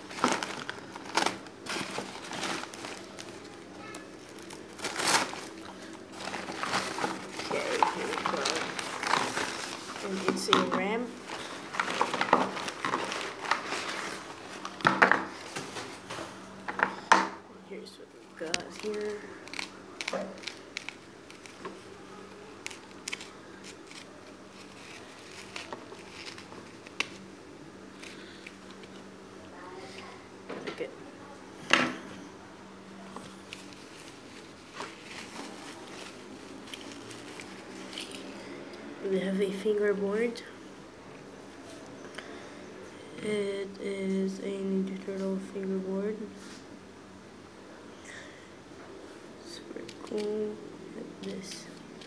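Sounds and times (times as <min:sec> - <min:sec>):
paper rustling: 0:00.0 - 0:16.2, 0:18.4 - 0:27.3, 0:33.2 - 0:38.3
plastic wrapping crinkling: 0:00.0 - 0:16.2, 0:18.2 - 0:27.3, 0:33.0 - 0:38.3
faint steady hum: 0:00.0 - 0:52.0.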